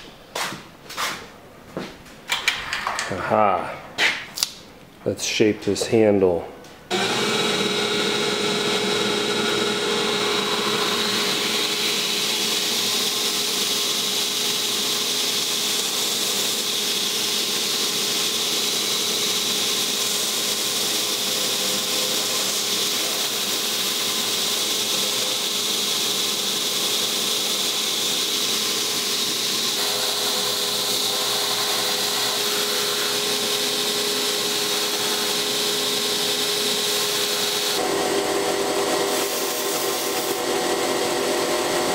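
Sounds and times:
belt grinder motor hum: 0:06.9 - 0:39.2.

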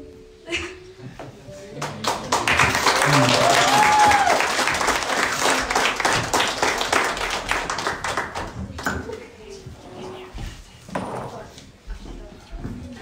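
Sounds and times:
audience applauding: 0:01.8 - 0:08.6
person cheering: 0:03.0 - 0:04.8.

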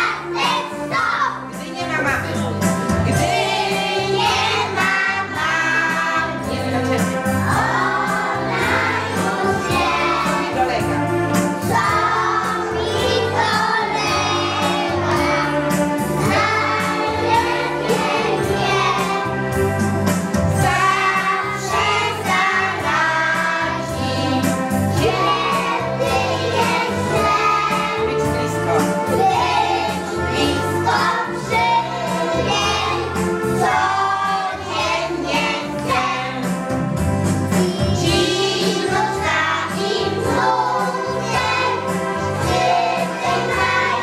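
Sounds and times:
children singing together: 0:00.0 - 0:01.4, 0:03.0 - 0:19.9, 0:20.5 - 0:36.7, 0:37.5 - 0:44.0
music with repeating bass line: 0:01.9 - 0:29.6.

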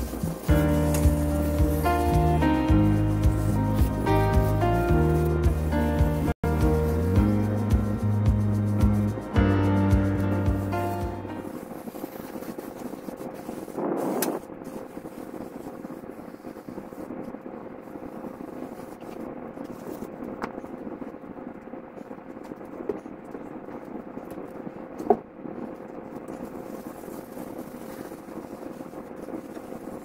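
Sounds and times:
room hum with faint tone: 0:06.6 - 0:30.0.

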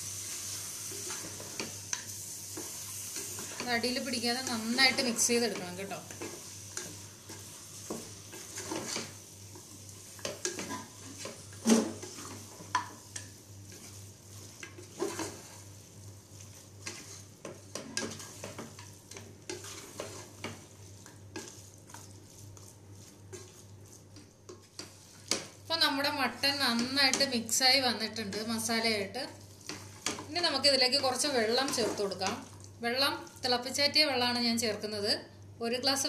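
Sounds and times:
frying sizzle: 0:00.0 - 0:34.3
spatula scraping and knocking pot: 0:16.8 - 0:25.6, 0:29.6 - 0:32.4.

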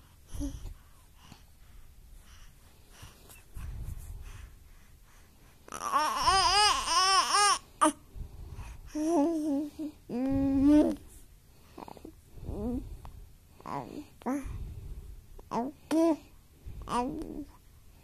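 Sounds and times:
baby cooing and babbling: 0:05.7 - 0:08.0, 0:08.9 - 0:11.0, 0:16.9 - 0:17.5.

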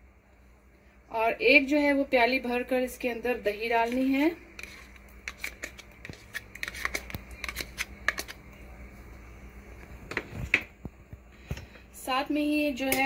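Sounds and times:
metal spoon scraping a bowl: 0:03.8 - 0:08.4.

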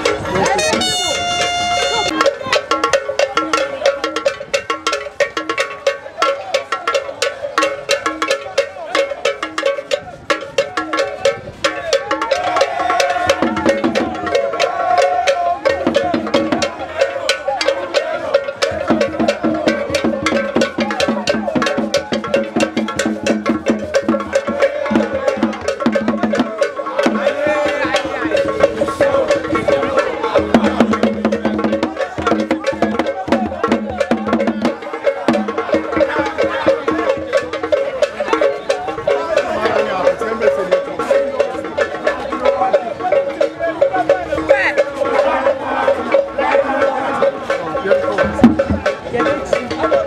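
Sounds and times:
drums: 0:00.0 - 0:50.0.

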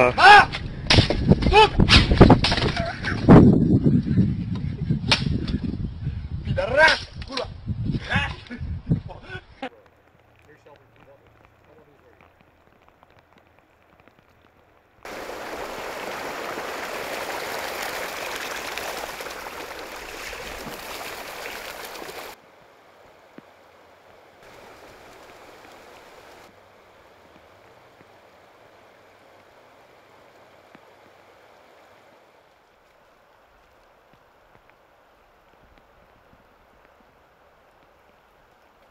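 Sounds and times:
floodwater rushing: 0:15.0 - 0:36.0.

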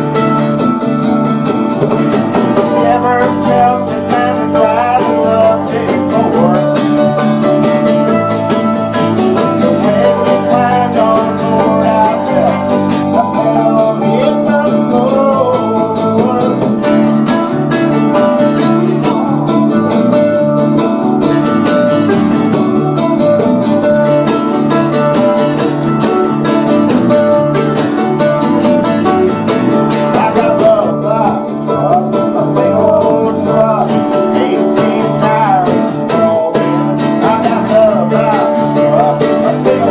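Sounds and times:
country-rock band playing: 0:00.0 - 0:39.9
man singing lead vocal: 0:02.4 - 0:07.4, 0:09.1 - 0:20.0, 0:29.9 - 0:39.9.

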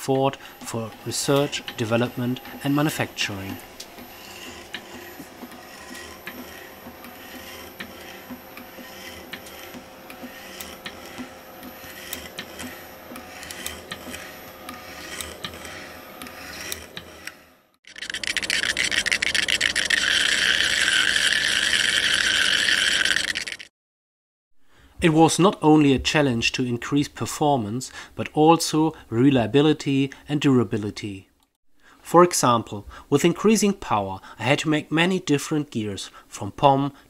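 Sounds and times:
shaper tool scraping metal: 0:00.2 - 0:23.6
crackling buzz of sparking machine: 0:00.3 - 0:23.7.

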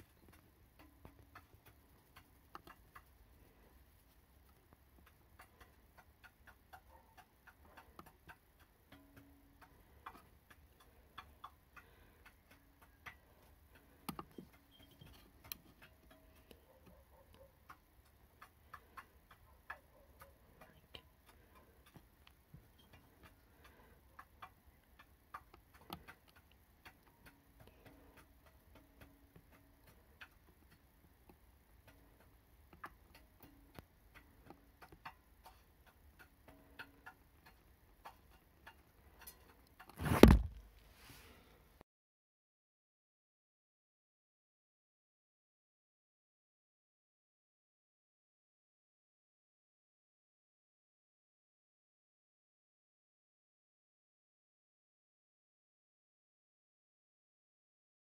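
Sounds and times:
small clicks and ticks: 0:00.0 - 0:41.8.

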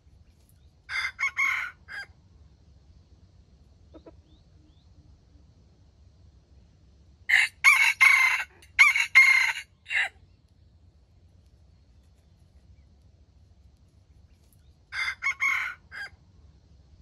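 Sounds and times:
rooster crowing: 0:00.9 - 0:02.1, 0:07.3 - 0:10.2, 0:14.9 - 0:16.2.

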